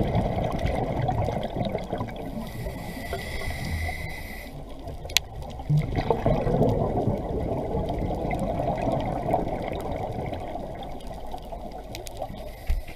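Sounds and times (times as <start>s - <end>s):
exhaled air bubbles underwater: 0.0s - 12.4s
faint clicks: 2.6s - 5.7s, 11.0s - 12.9s.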